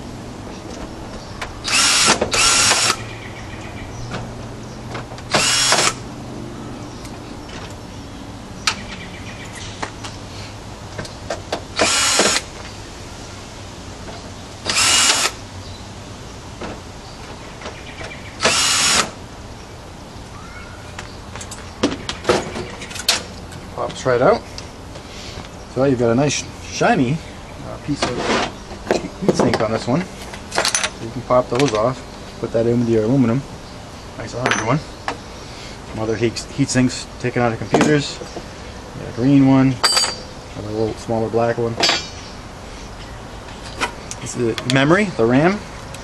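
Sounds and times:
cordless drill running: 1.6 - 3.0, 5.3 - 6.0, 11.8 - 12.5, 14.7 - 15.4, 18.4 - 19.2
handling clicks and knocks: 28.0 - 31.9.

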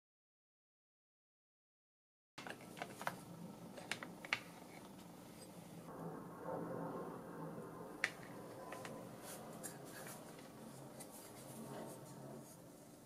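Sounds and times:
faint scraping and rustling: 8.2 - 13.0.

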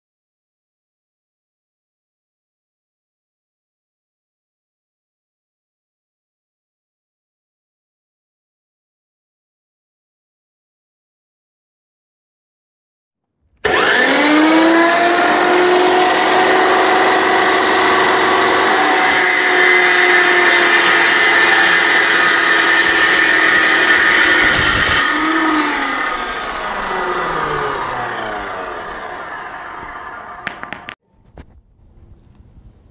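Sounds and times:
chop saw winding down: 13.6 - 30.7
chop saw grinding through steel: 13.6 - 30.9
chop saw spinning up: 13.6 - 31.0.

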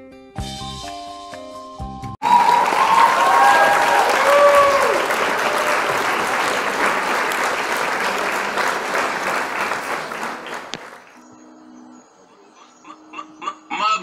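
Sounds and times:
audience applauding: 2.2 - 11.2.

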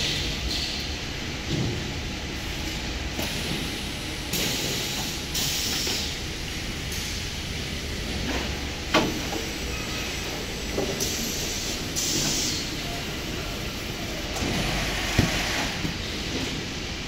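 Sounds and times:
machinery humming: 0.0 - 17.0
hiss: 2.4 - 6.2, 10.9 - 12.9.

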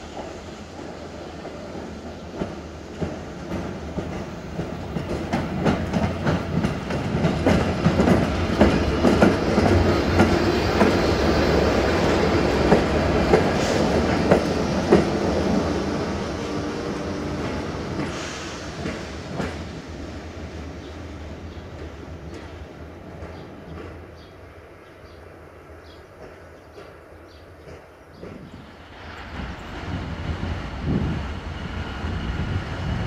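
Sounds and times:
train wheels clattering over rail joints: 1.4 - 15.6, 16.9 - 19.8.

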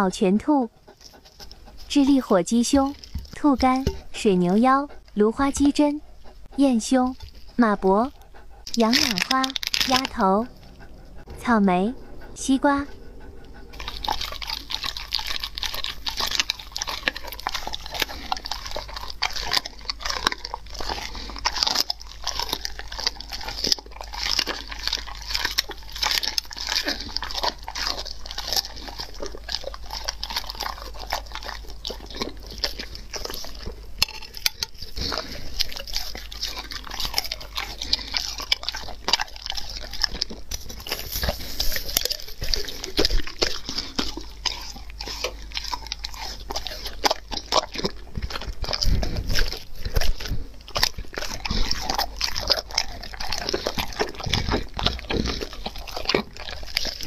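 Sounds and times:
dog chewing meat: 0.0 - 57.0.

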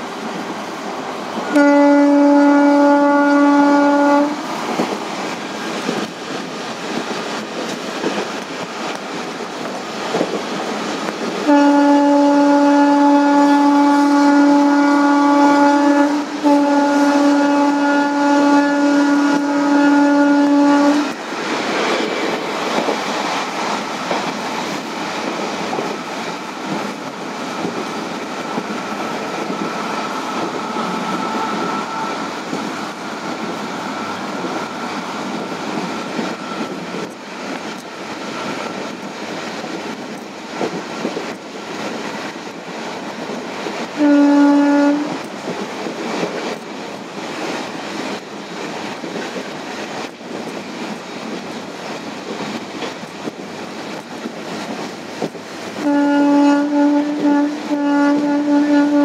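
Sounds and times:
train running on track: 0.0 - 59.0
train horn blast: 1.5 - 4.5, 11.4 - 21.2, 29.3 - 32.4, 44.0 - 45.3, 55.8 - 59.0.

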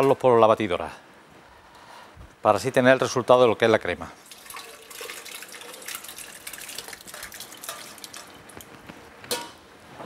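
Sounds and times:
soup pouring and splashing: 4.2 - 8.7.

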